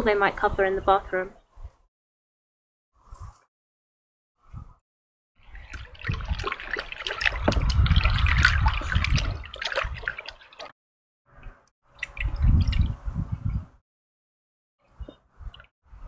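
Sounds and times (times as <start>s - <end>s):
water sloshing and dripping: 5.4s - 13.0s.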